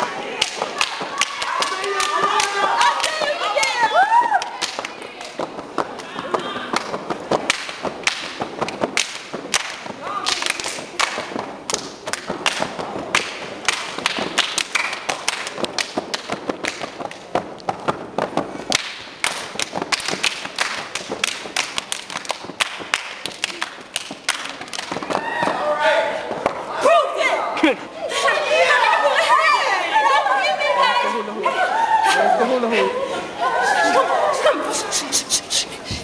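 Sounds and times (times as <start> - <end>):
hand claps: 0.4 - 25.6
foot stomps: 0.5 - 26.7
body slaps: 4.4 - 25.6.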